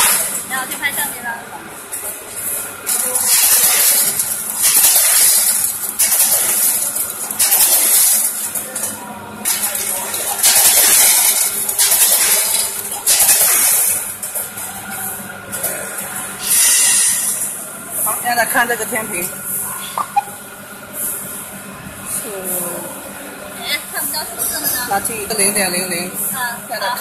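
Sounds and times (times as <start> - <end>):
plastic needles rattling in machine: 9.5 - 14.1.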